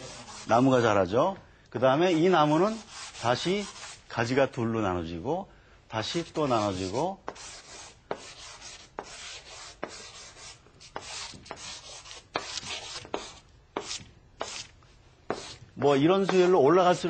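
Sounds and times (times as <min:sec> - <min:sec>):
drawing stick scratching paper: 0:00.0 - 0:00.6, 0:06.2 - 0:14.7, 0:15.3 - 0:17.0.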